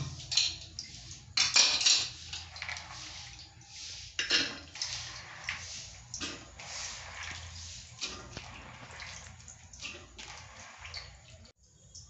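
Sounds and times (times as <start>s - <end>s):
metal lid clattering: 1.4s - 2.8s, 4.2s - 5.0s.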